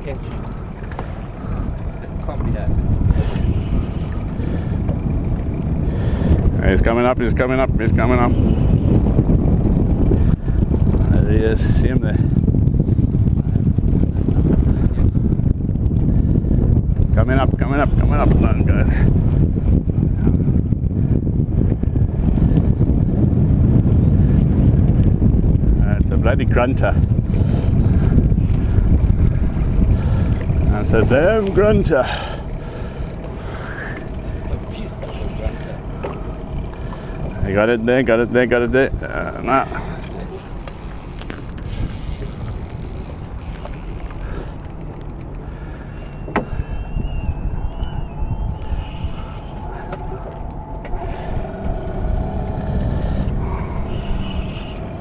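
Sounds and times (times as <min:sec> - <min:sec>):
wind buffeting microphone: 0:00.0 - 0:55.0
faint clicks: 0:00.1 - 0:02.5, 0:03.1 - 0:05.0, 0:34.9 - 0:37.3, 0:39.0 - 0:46.6, 0:52.6 - 0:55.0
faint high wavering whine: 0:45.9 - 0:52.9.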